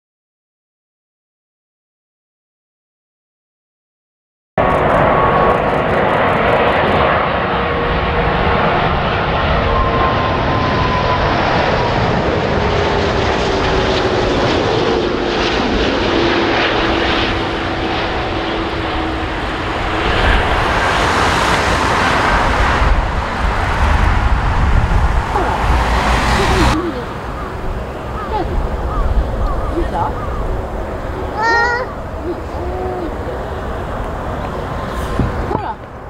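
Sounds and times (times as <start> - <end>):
jet airliner roar with whine: 4.6 - 36.0.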